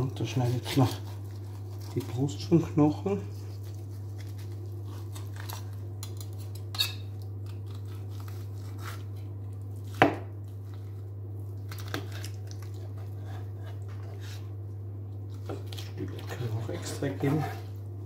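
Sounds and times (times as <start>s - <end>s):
steady low hum: 0.0s - 18.0s
knife cutting and scraping: 0.3s - 2.2s, 3.4s - 9.3s, 11.7s - 14.5s, 15.4s - 17.8s.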